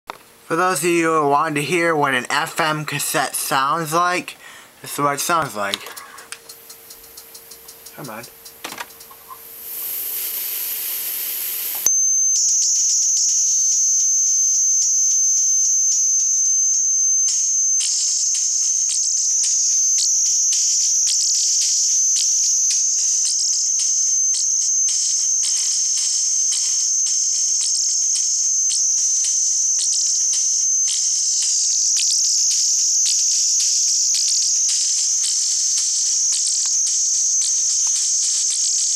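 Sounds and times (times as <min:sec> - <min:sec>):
shrill wavering buzz: 0:00.5 - 0:38.9
high hiss: 0:02.3 - 0:11.9
steady high whistle: 0:09.7 - 0:38.9.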